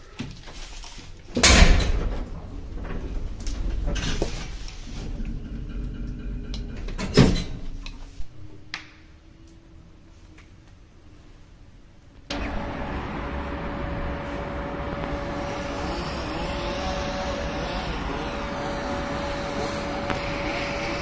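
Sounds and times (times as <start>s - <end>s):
lift car rumbling and rattling: 1.4s - 7.8s, 12.3s - 21.0s
faint steady hum: 7.7s - 21.0s.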